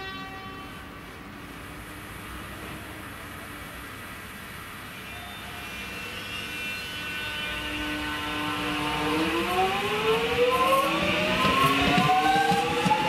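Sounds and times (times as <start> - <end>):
electric train motor whine: 5.2 - 13.0.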